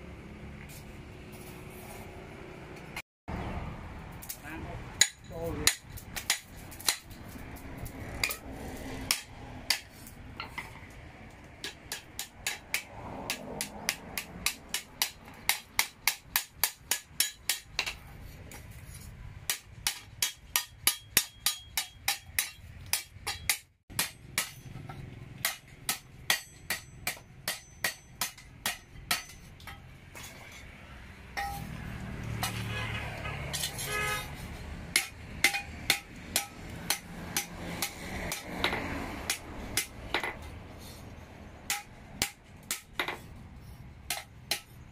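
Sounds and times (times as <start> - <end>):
hammer striking metal on anvil: 5.0 - 7.2, 9.1 - 10.6, 11.6 - 18.0, 19.5 - 30.4, 31.4 - 31.8, 34.9 - 40.5, 41.7 - 43.2, 44.1 - 44.8.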